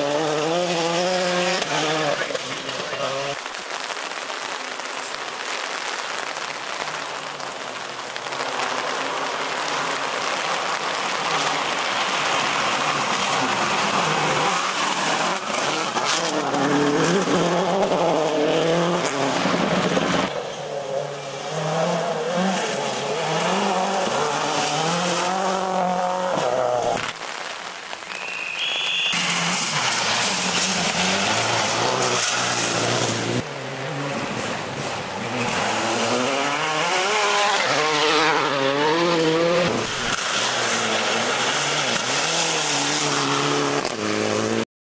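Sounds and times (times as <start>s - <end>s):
rally car engine revving: 0.0s - 4.5s, 8.2s - 27.4s, 29.2s - 44.6s
tyres on gravel: 22.7s - 33.4s.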